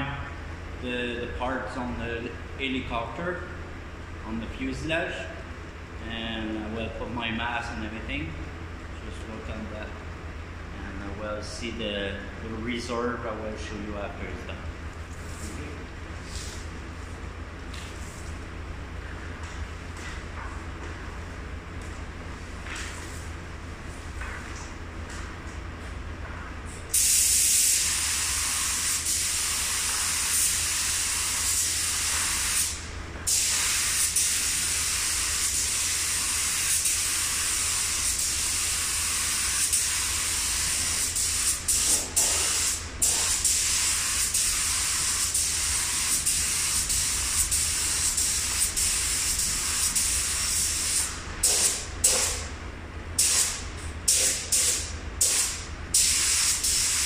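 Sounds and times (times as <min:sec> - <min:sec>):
spray gun hissing: 0:26.9 - 0:52.4, 0:53.2 - 0:57.0.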